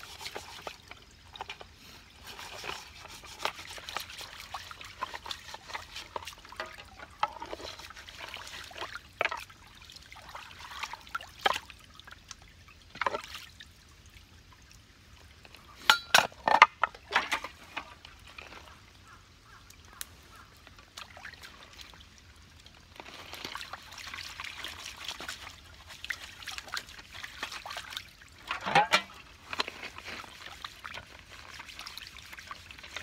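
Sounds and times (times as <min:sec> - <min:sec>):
water trickling: 0:00.0 - 0:33.0
knocks and clinks: 0:15.9 - 0:17.4, 0:28.5 - 0:29.1.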